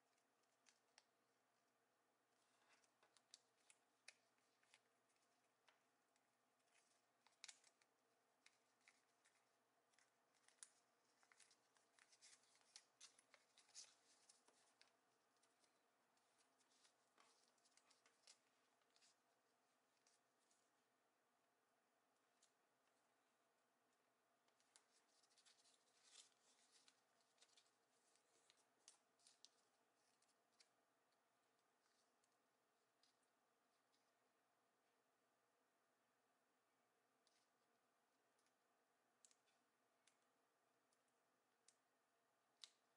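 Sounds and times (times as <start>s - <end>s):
paper crinkling and creasing: 2.4s - 19.2s, 24.5s - 30.8s.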